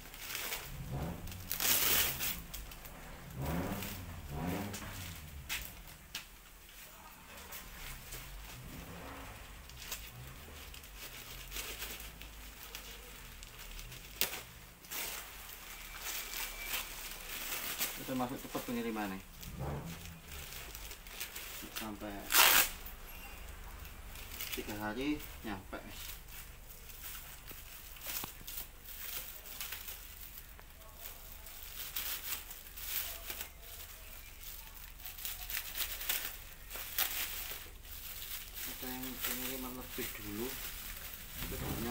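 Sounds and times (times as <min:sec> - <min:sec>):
plastic wrap rustling and crinkling: 0:00.0 - 0:41.9.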